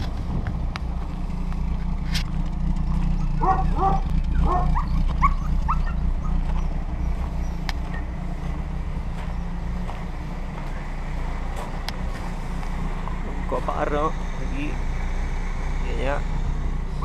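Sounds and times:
car engine idling: 0:00.0 - 0:17.0
dog yipping and barking: 0:03.2 - 0:08.1.

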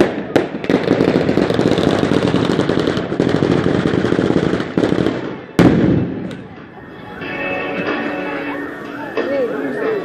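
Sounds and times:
fireworks cracking rapidly: 0:00.0 - 0:06.9.

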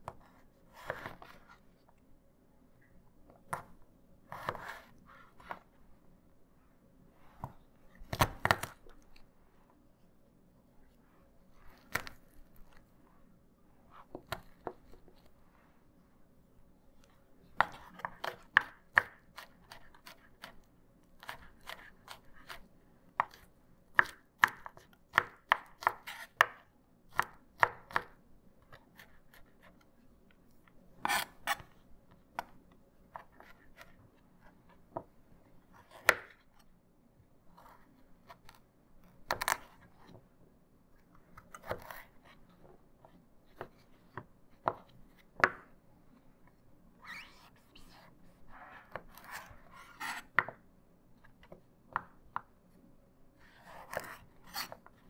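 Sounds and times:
knife cutting through carrot: 0:31.0 - 0:31.7, 0:41.4 - 0:42.4.

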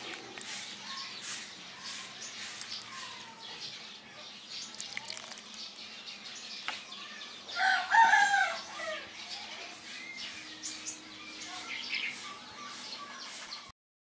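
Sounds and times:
rooster crowing: 0:07.6 - 0:09.0.

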